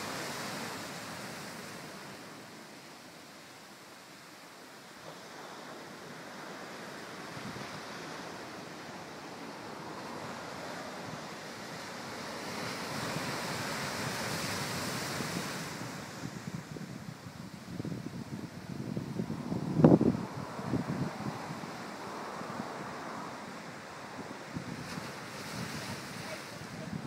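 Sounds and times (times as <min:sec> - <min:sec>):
surf breaking on rocky shore: 0:05.0 - 0:27.0
wind buffeting microphone: 0:05.1 - 0:27.0.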